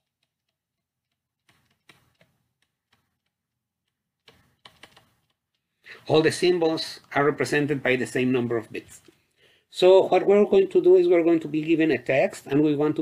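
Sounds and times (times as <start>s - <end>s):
stylus tapping on tablet screen: 0.0s - 5.7s.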